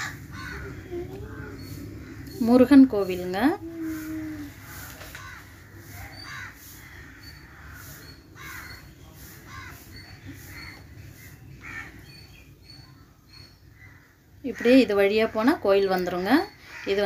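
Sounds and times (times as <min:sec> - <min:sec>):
crows cawing: 0:00.0 - 0:02.5, 0:04.6 - 0:12.2, 0:13.8 - 0:15.0, 0:16.6 - 0:17.0.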